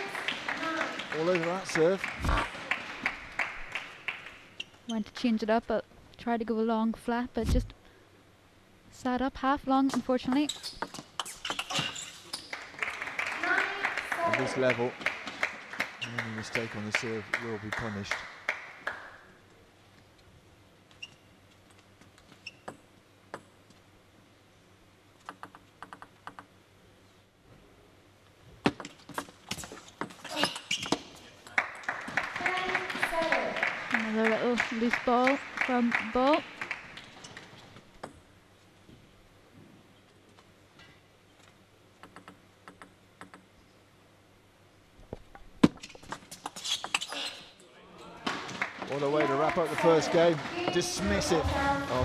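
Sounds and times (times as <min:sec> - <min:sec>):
table tennis rally: 0:00.0 - 0:05.0, 0:09.8 - 0:19.3, 0:25.2 - 0:26.6, 0:28.6 - 0:38.3, 0:42.0 - 0:43.5, 0:45.3 - 0:52.0
table tennis ball bouncing: 0:25.2 - 0:26.5, 0:28.6 - 0:29.3, 0:42.0 - 0:43.5
crowd noise: 0:47.8 - 0:52.0.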